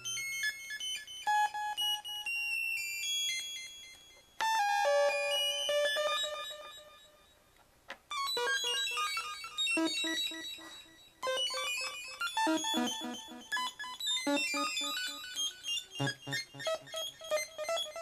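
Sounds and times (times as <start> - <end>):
synthesizer sawtooth notes with echo: 8.4 - 18.0.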